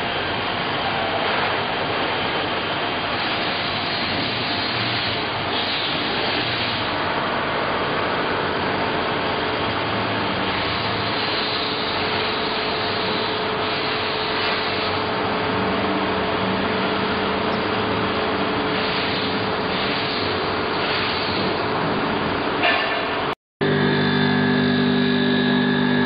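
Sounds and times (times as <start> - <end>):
constant motor hum: 0.0 - 26.0
grinding wheel whirring: 23.6 - 26.0.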